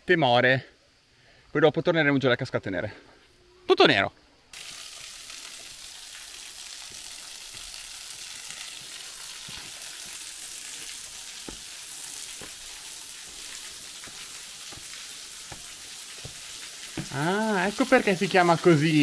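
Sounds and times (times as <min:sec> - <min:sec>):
waterfall hiss: 0:04.5 - 0:19.0
footsteps on stone steps: 0:06.9 - 0:18.6.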